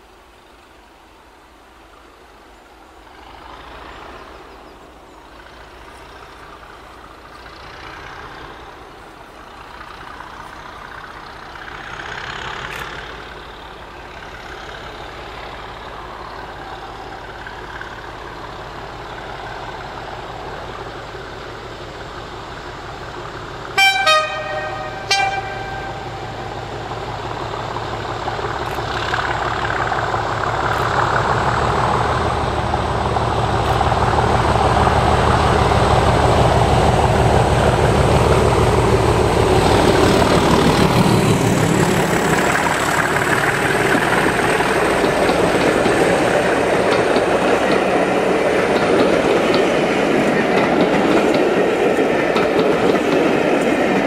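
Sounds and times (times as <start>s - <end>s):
diesel locomotive engine: 0.0s - 54.0s
locomotive horn blasts: 23.8s - 26.6s.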